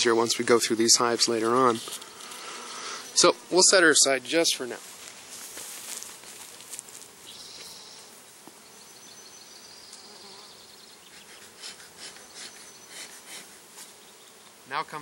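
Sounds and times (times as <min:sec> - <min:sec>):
bees buzzing: 0:00.0 - 0:15.0
scratchy handling noises: 0:04.8 - 0:08.1.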